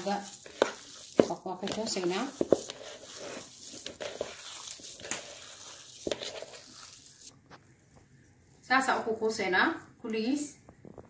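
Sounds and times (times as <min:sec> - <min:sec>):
hand kneading minced meat: 0:00.0 - 0:08.6.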